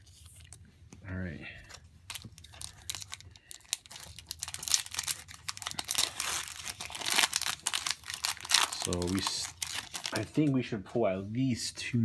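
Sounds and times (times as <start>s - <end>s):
foil wrapper crinkling: 2.1s - 10.5s.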